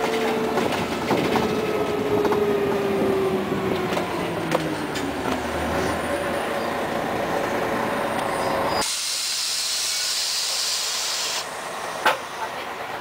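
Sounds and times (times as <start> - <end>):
bus engine and road rumble: 0.0 - 13.0
compressed air hiss: 8.8 - 11.5.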